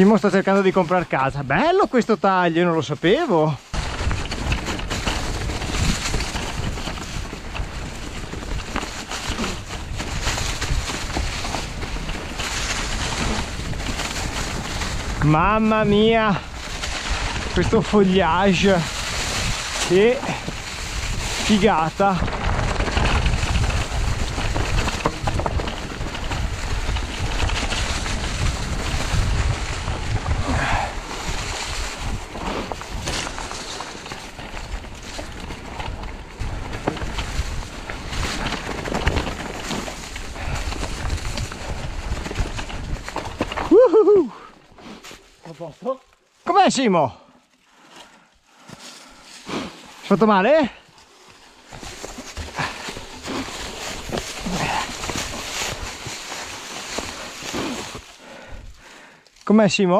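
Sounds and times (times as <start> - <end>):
bike rattling: 0.0 - 46.1, 46.7 - 59.9
tyres over leaves: 0.0 - 59.9
wind on microphone: 3.7 - 33.6.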